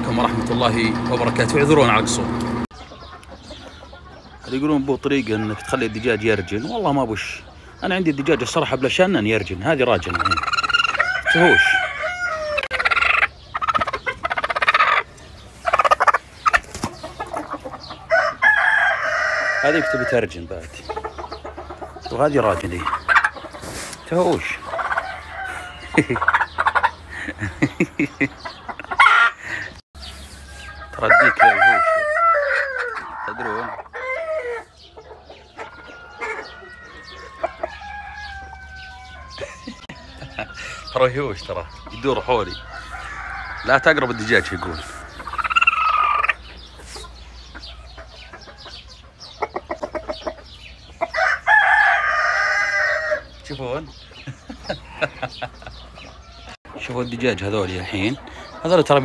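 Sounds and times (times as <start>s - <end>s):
chickens clucking: 0.0s - 59.0s
rooster crowing: 10.7s - 12.8s, 18.1s - 20.3s, 24.8s - 26.1s, 30.0s - 34.7s, 35.6s - 40.9s, 42.5s - 45.9s, 51.1s - 53.3s.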